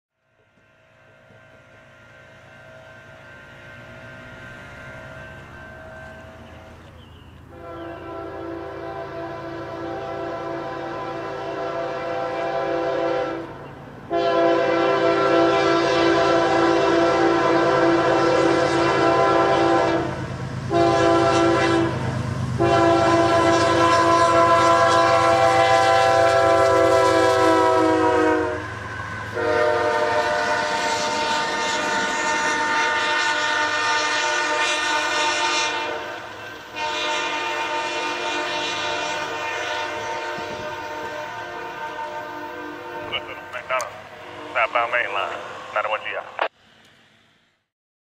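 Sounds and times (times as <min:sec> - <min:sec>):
locomotive air horn blasts: 0:07.5 - 0:44.6.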